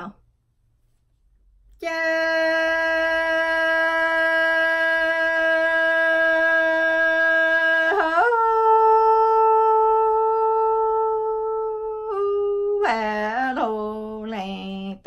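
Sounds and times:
woman singing chanted poetry: 0:01.8 - 0:15.0.

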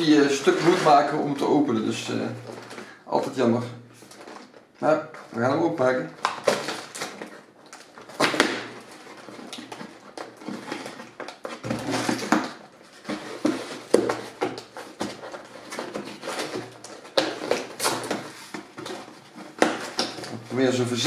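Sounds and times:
cardboard box scraping and rustling: 0:00.1 - 0:01.4, 0:08.9 - 0:20.5
cardboard rasping: 0:06.2 - 0:21.0.

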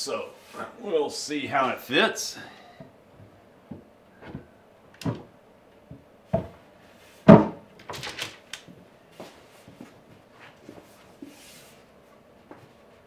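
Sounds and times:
wooden knocks and thunks: 0:02.8 - 0:06.6, 0:07.2 - 0:08.1.

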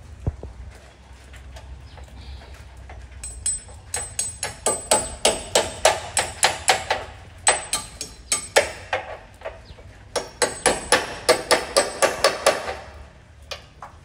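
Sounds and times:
hammer tapping a nail: 0:03.2 - 0:09.2, 0:10.1 - 0:12.8.

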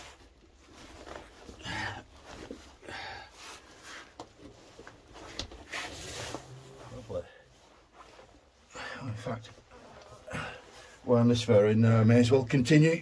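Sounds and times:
clothing scraping against rock: 0:00.0 - 0:08.7
person breathing hard: 0:01.5 - 0:04.2.

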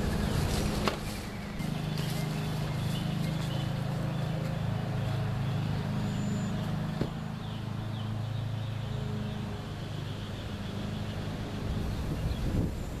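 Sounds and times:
low mechanical drone: 0:00.0 - 0:13.0.

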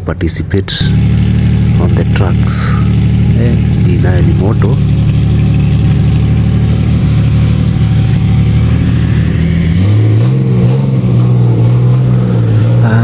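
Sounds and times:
vehicle engine humming: 0:00.0 - 0:13.0.

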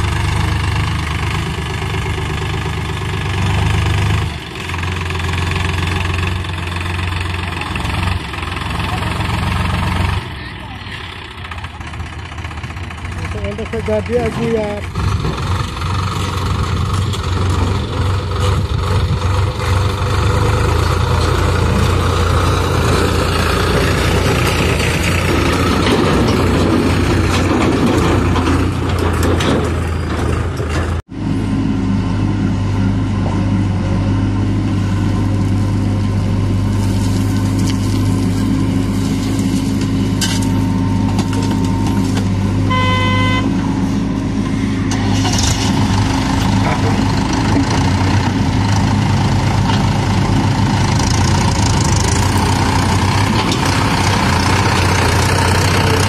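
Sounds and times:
diesel tractor engine running: 0:00.0 - 0:56.0
short horn beep: 0:42.6 - 0:43.6.

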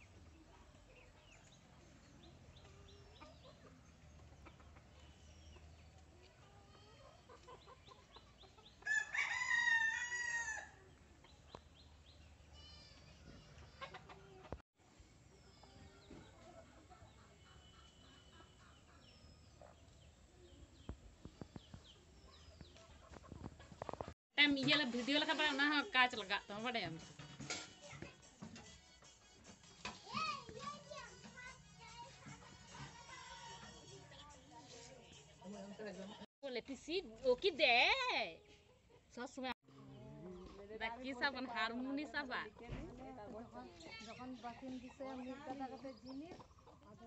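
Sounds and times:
rooster crowing: 0:08.8 - 0:10.8.

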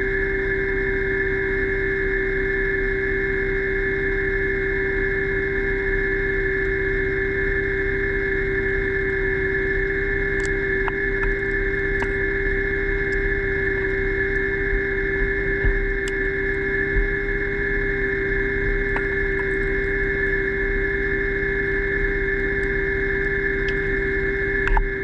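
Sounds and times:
underwater motor and propeller whine: 0:00.0 - 0:25.0
faint clicks: 0:24.6 - 0:24.9.

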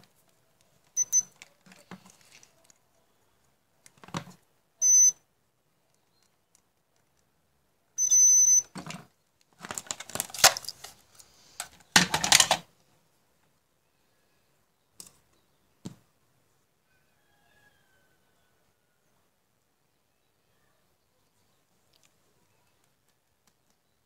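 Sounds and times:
rustling and handling noise: 0:00.0 - 0:04.5, 0:08.7 - 0:13.6
multimeter continuity beep: 0:01.0 - 0:01.4, 0:04.8 - 0:05.2, 0:08.0 - 0:08.7.

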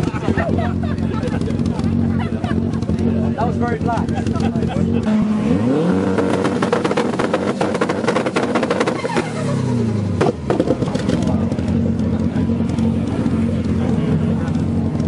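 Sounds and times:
car engine revving: 0:00.0 - 0:15.0
exhaust crackling: 0:00.0 - 0:15.0.

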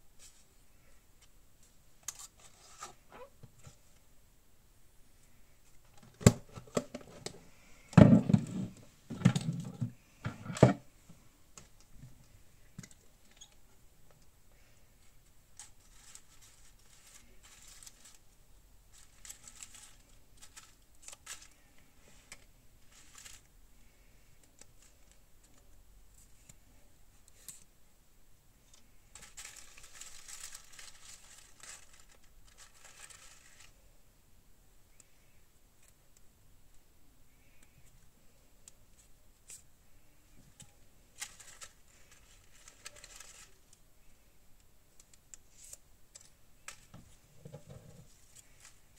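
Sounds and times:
paper rustling and crinkling: 0:02.0 - 0:03.8, 0:14.6 - 0:27.7, 0:28.7 - 0:33.8, 0:37.4 - 0:43.8, 0:45.0 - 0:48.9.

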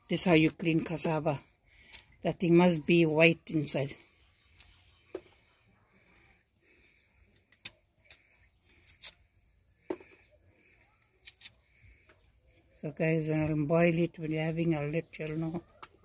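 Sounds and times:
knife scraping root skin: 0:07.3 - 0:09.6, 0:10.2 - 0:11.8.

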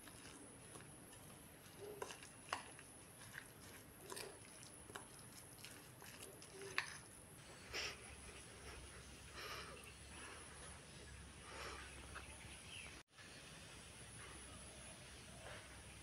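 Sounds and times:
spoon stirring moist food: 0:00.0 - 0:12.4.

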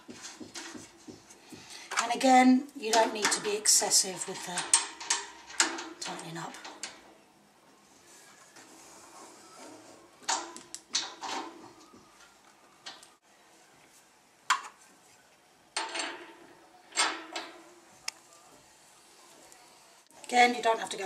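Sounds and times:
brass fittings clinking on radiator: 0:02.9 - 0:07.0
sharp metal clatters: 0:02.9 - 0:07.0.

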